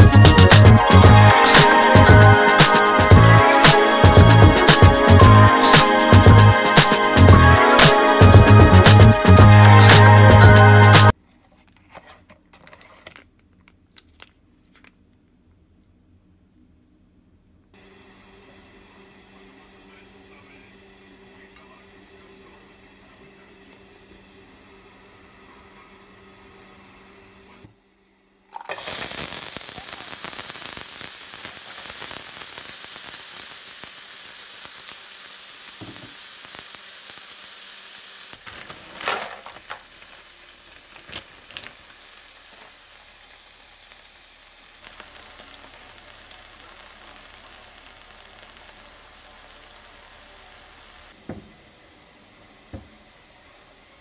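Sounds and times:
vegetables sizzling in oil: 28.6s - 54.0s
peppers tipped from plastic bag: 38.4s - 42.8s.

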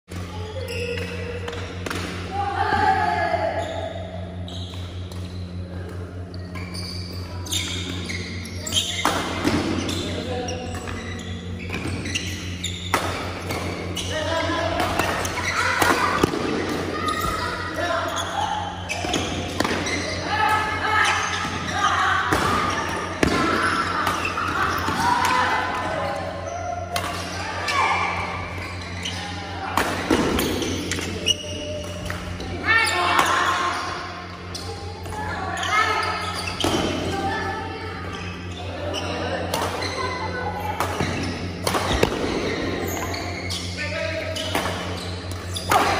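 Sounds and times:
sports hall hum: 0.1s - 45.9s
shoes squeaking on wooden floor: 6.5s - 14.2s.

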